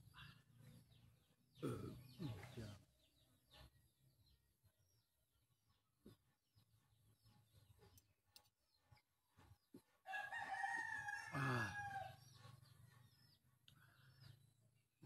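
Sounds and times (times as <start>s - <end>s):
rooster crowing: 10.1s - 12.4s.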